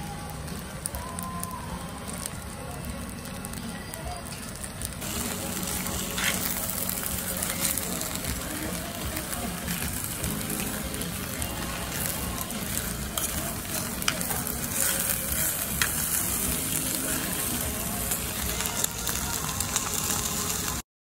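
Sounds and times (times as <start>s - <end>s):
food sizzling in stone bowl: 0.0s - 20.8s
metal spoon stirring: 11.8s - 17.1s.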